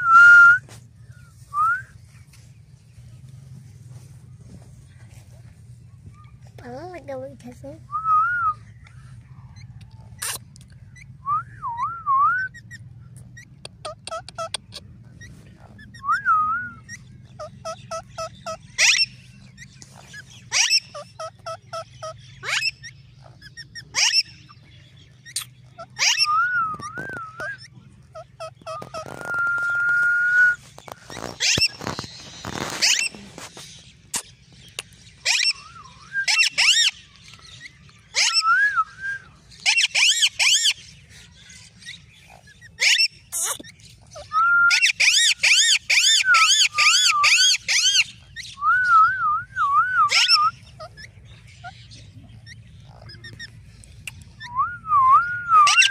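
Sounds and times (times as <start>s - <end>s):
parakeet whistles and chirps: 13.4s - 19.1s, 25.2s - 33.2s, 34.8s - 40.9s, 41.5s - 55.9s
parakeet screeching: 17.3s - 19.1s, 20.1s - 24.4s, 25.3s - 29.4s, 31.1s - 33.2s, 35.2s - 35.6s, 36.3s - 36.9s, 39.6s - 40.8s, 42.7s - 48.5s, 50.1s - 53.5s, 55.6s - 55.9s.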